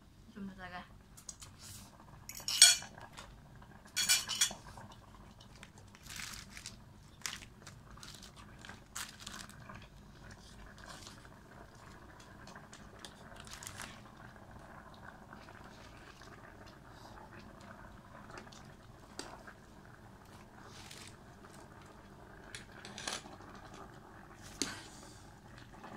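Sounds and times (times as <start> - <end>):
ladle clinking on metal pot: 2.3 - 2.9.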